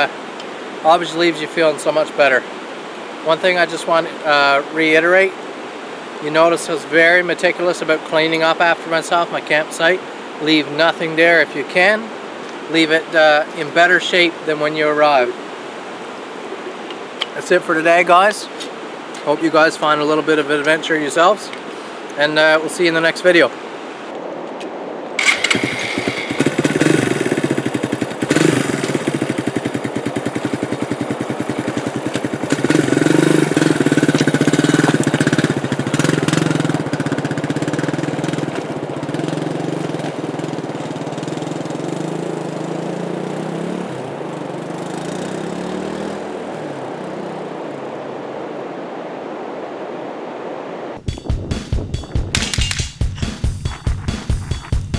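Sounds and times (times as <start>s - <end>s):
motorcycle engine revving: 25.2s - 48.4s.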